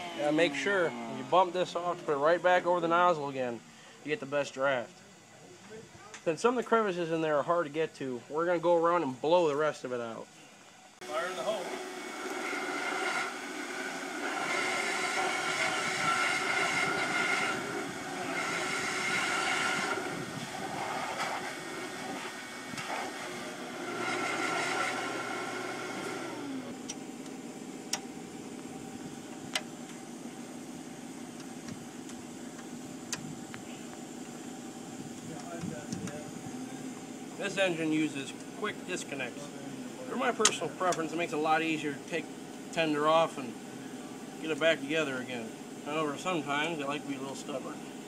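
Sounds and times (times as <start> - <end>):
motor winding down: 0.0 - 3.1, 11.0 - 39.4
shop vacuum motor blowing: 11.0 - 42.3.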